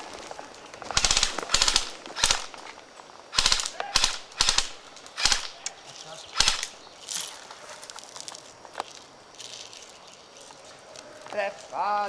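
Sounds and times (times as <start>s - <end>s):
airsoft rifle bursts: 0.9s - 2.6s, 3.3s - 5.8s, 6.4s - 6.8s.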